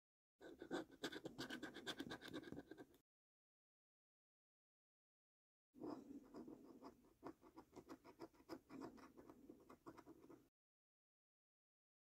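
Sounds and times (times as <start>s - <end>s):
coin scratching scratch card: 0.4s - 3.0s, 5.8s - 10.4s.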